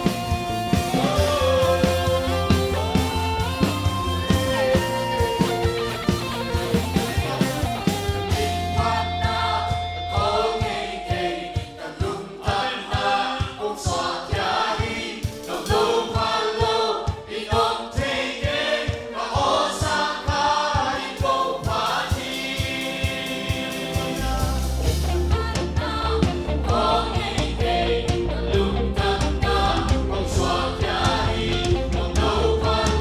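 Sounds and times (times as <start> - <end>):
electric guitars: 0.0 - 12.0, 22.5 - 33.0
congregation singing: 0.0 - 33.0.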